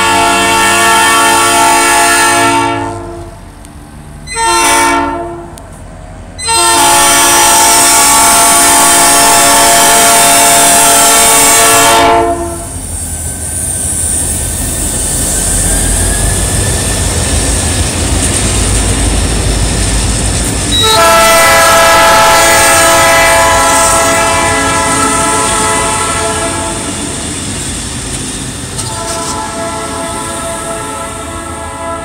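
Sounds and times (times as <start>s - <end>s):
locomotive air horn blast: 0.0s - 3.4s, 4.3s - 5.6s, 6.4s - 12.8s, 20.7s - 27.0s, 28.8s - 32.0s
diesel engines rumbling: 0.0s - 32.0s.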